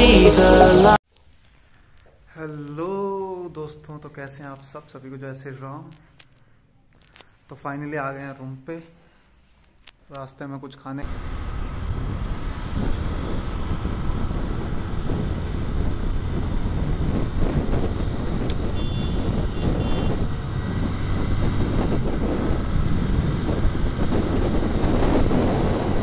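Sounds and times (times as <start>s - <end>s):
wind and road noise: 11.0s - 26.0s
motorcycle engine rumble: 11.1s - 26.0s.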